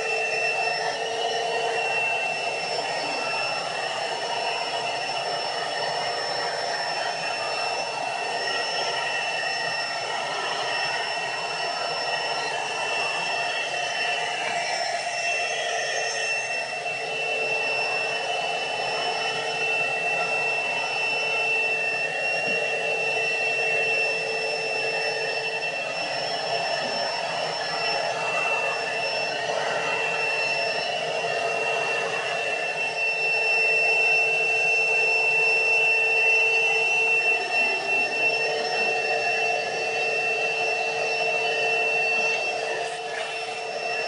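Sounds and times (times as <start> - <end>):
vacuum cleaner motor whine: 0.0 - 44.0.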